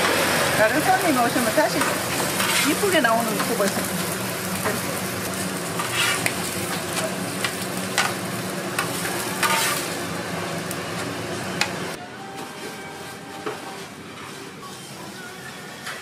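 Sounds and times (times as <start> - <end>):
pancakes sizzling on griddle: 0.0 - 11.5
metal spatula scraping griddle: 0.7 - 8.2, 8.8 - 10.0, 12.3 - 16.0.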